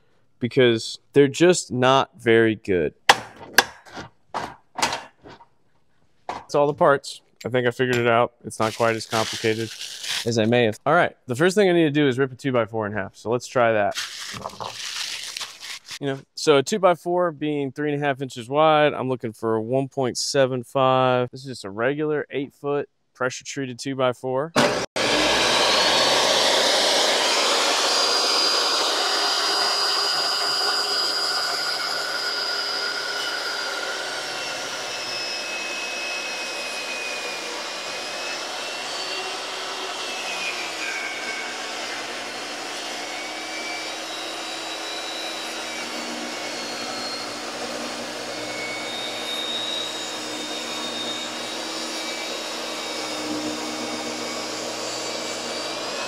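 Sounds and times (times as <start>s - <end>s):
table saw cutting wood: 8.6s - 10.6s, 13.9s - 16.1s, 24.6s - 56.0s.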